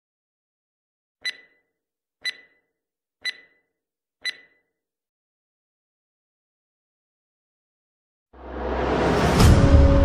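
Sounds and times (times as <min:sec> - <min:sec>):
short countdown beeps: 0:01.2 - 0:04.7.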